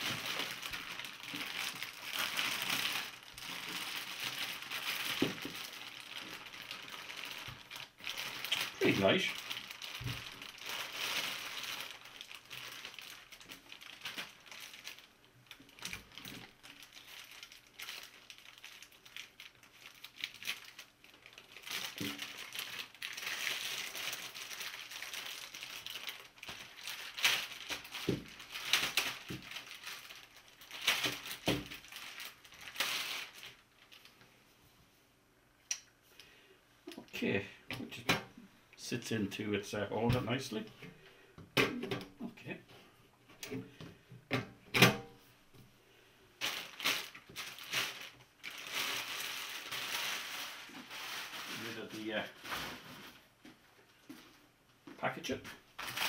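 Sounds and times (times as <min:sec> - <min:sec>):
plastic bag crinkling: 0:00.0 - 0:34.2, 0:46.4 - 0:54.4, 0:55.6 - 0:56.0.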